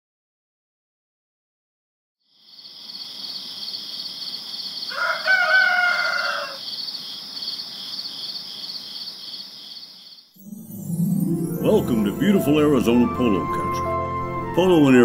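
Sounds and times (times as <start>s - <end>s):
insects trilling: 2.3s - 10.3s
rooster crowing: 4.8s - 6.8s.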